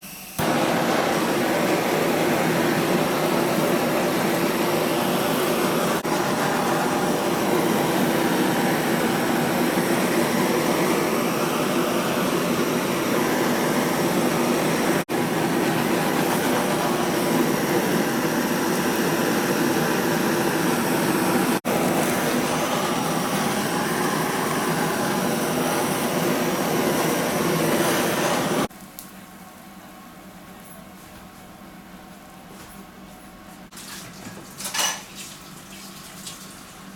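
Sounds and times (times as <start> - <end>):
blowtorch hissing: 0.2 - 28.7.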